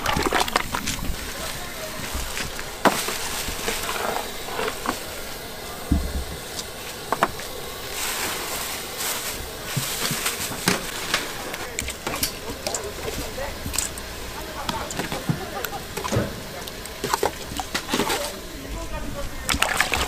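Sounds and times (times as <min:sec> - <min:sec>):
utensils and dishes clinking: 0:00.0 - 0:18.7
steady background hiss: 0:00.0 - 0:20.0
dull thump: 0:05.8 - 0:06.4.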